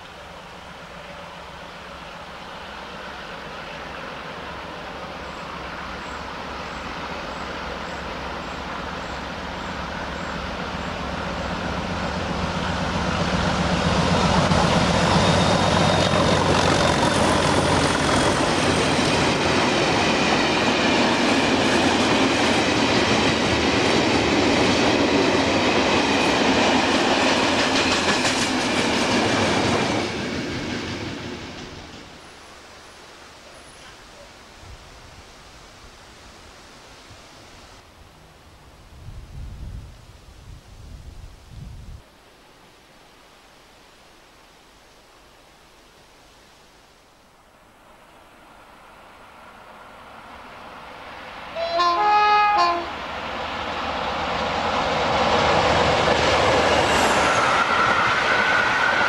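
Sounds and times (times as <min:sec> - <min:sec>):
diesel locomotive engines: 0:00.0 - 0:34.6, 0:48.0 - 0:59.0.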